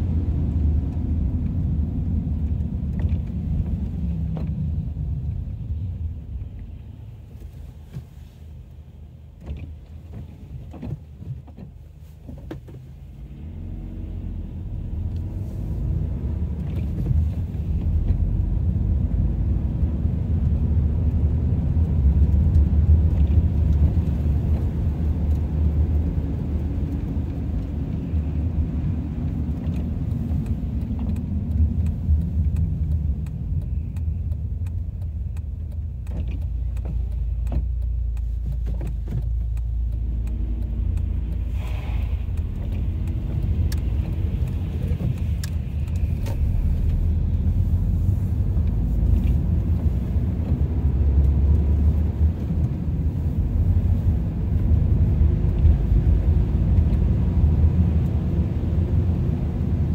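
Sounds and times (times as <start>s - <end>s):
car road and engine rumble: 0.0s - 59.9s
faint ticks: 29.6s - 47.5s.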